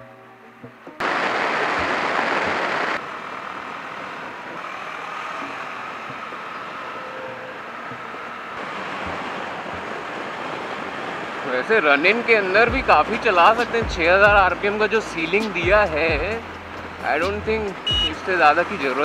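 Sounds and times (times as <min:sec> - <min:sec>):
motorcycle engine at speed: 0:03.0 - 0:09.9.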